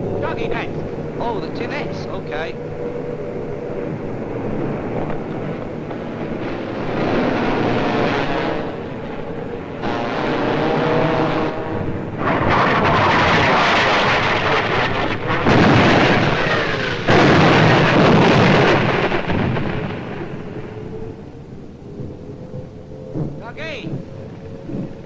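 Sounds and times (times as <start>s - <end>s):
bombs exploding: 12.2s - 20.6s.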